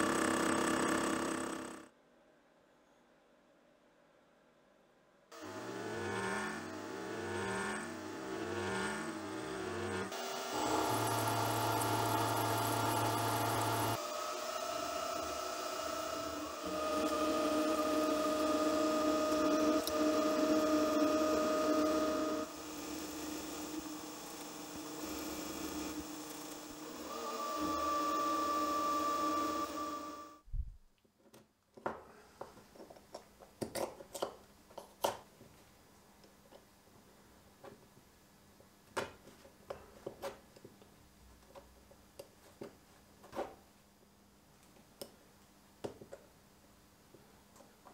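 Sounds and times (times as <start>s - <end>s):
milling machine whining: 8.2s - 30.4s.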